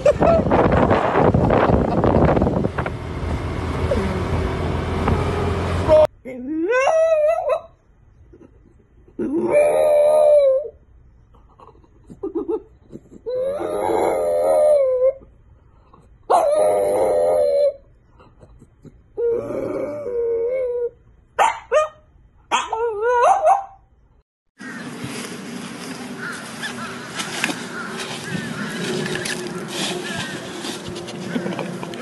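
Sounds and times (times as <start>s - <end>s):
wind rushing: 0.0s - 4.6s
street noise: 0.0s - 6.2s, 24.6s - 32.0s
dog howling: 13.4s - 15.2s, 16.3s - 17.8s.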